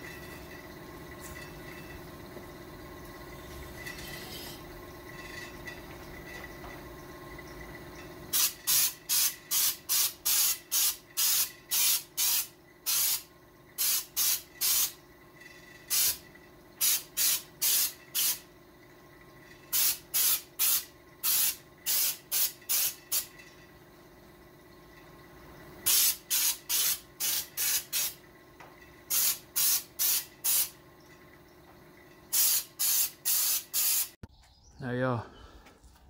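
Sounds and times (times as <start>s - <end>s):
spray gun hissing bursts: 8.3s - 15.0s, 15.9s - 16.2s, 16.8s - 18.4s, 19.7s - 23.3s, 25.9s - 28.2s, 29.1s - 30.8s, 32.3s - 34.2s.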